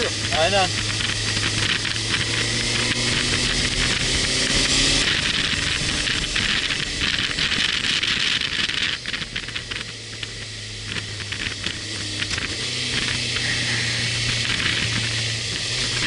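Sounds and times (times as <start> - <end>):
motorcycle engine running: 0.0 - 16.0
wind rushing over microphone: 0.0 - 16.0.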